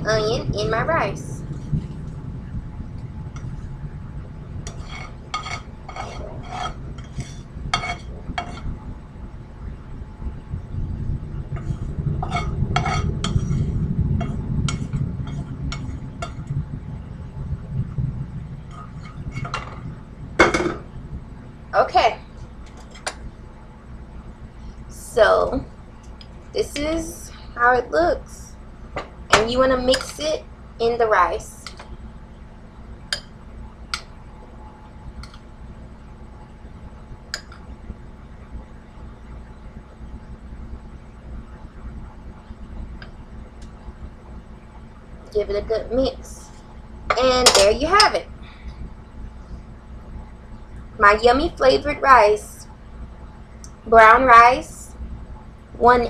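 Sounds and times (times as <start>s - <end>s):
low steady hum: 0.0s - 56.0s
utensil scraping a skillet: 4.6s - 8.8s, 11.6s - 16.5s, 18.7s - 19.8s
utensil clatter: 47.1s - 48.2s.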